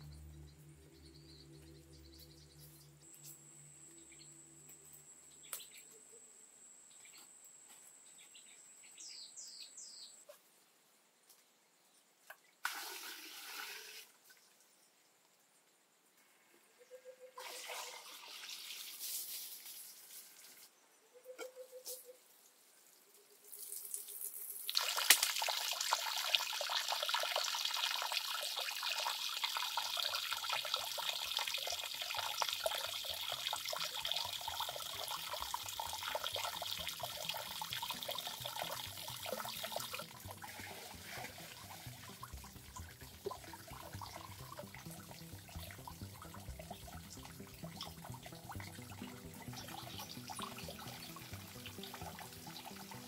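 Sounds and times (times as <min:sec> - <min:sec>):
water splashing into pond: 0:12.3 - 0:14.6, 0:17.4 - 0:20.7, 0:23.5 - 0:53.0.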